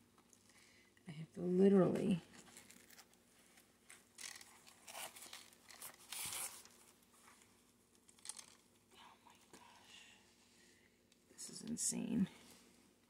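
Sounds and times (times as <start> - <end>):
arm brace rustling and scraping: 2.3 - 8.7.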